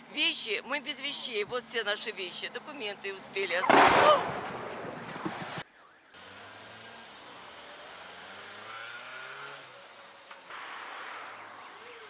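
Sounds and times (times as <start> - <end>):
vehicle engine accelerating past: 6.2 - 10.0.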